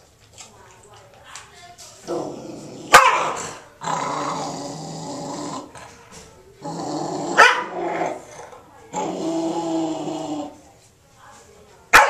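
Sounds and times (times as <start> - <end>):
dog growling: 2.0 - 6.0, 6.6 - 10.6.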